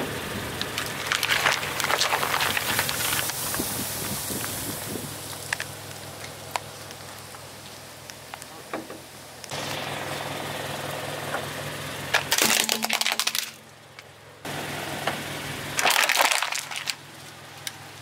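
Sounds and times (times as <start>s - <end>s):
plastic cracking and snapping: 0.7s - 3.4s, 12.2s - 13.6s, 15.8s - 17.0s.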